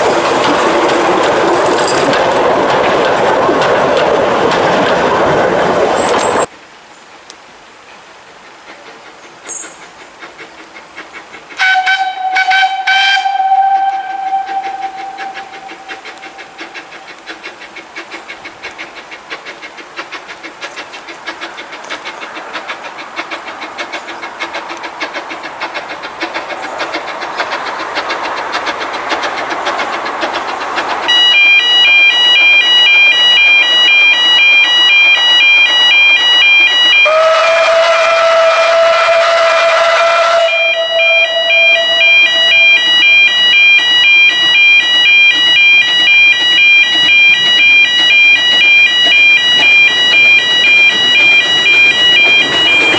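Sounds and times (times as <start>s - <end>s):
steam locomotive exhaust beats: 8.2s - 52.9s
steam whistle: 11.6s - 17.2s, 31.1s - 52.9s
level crossing warning alarm: 11.6s - 17.4s, 31.0s - 52.9s.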